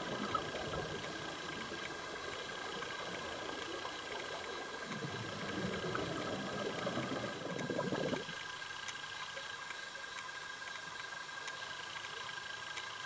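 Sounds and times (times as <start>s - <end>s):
underwater bubbles rushing: 0.0s - 8.6s
faint constant whine: 0.0s - 13.0s.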